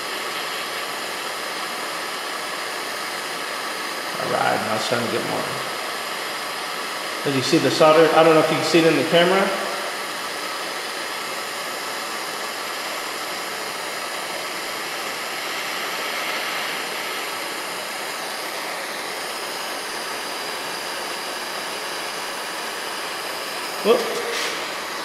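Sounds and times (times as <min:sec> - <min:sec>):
gas torch hissing: 0:00.0 - 0:25.0.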